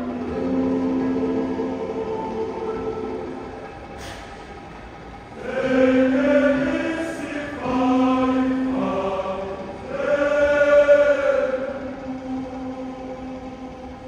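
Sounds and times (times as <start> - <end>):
large choir singing: 0.0 - 14.0.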